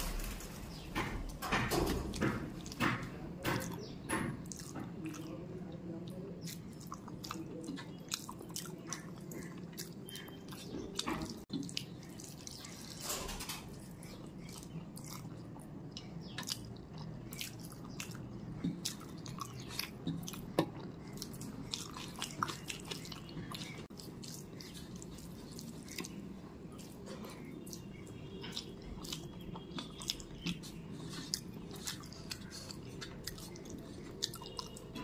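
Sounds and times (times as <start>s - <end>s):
wet chewing: 2.0s - 13.0s, 13.6s - 35.0s
fingers squishing food on a plate: 13.7s - 35.0s.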